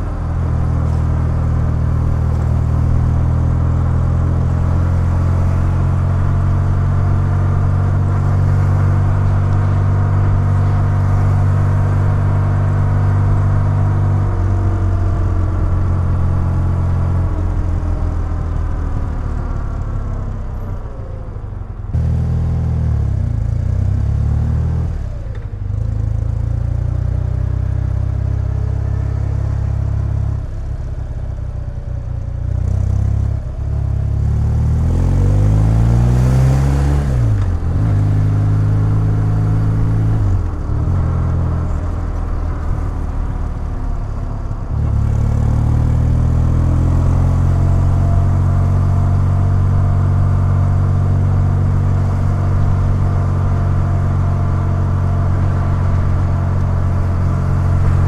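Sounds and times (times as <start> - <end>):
motorcycle engine running: 0.0 - 20.8.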